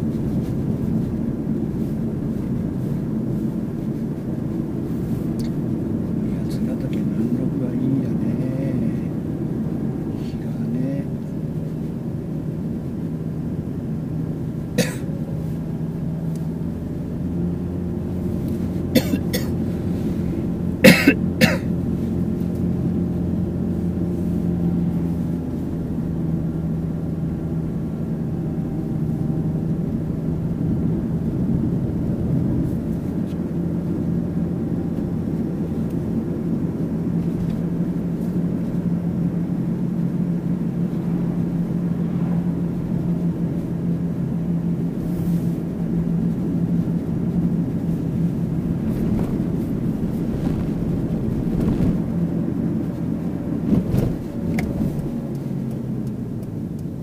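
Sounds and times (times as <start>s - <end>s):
car engine drone: 0.0s - 57.0s
tyre and road noise: 0.0s - 57.0s.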